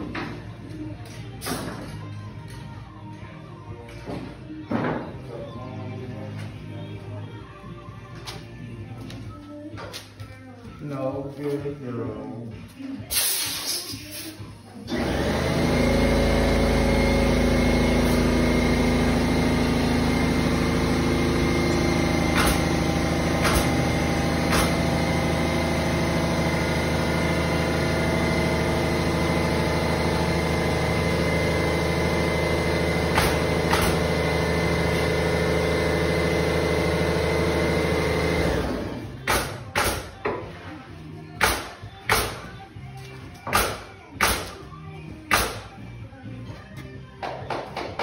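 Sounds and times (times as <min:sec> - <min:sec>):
machine motor humming and whining: 0:14.9 - 0:39.2.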